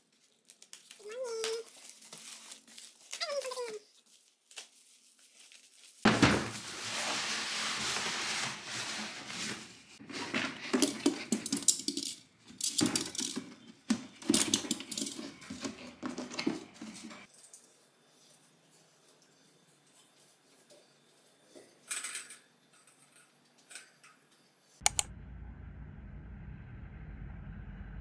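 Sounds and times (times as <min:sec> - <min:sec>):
plastic wrapping and cardboard rustling: 0:00.0 - 0:11.7.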